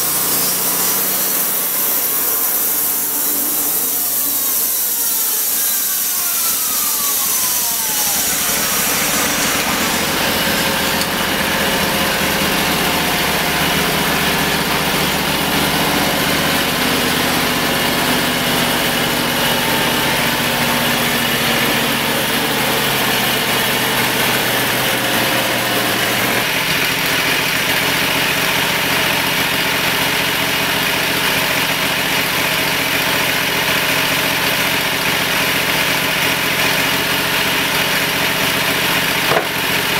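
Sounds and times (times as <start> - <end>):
falling whine: 0.0 - 26.7
sawmill engine running: 0.0 - 39.9.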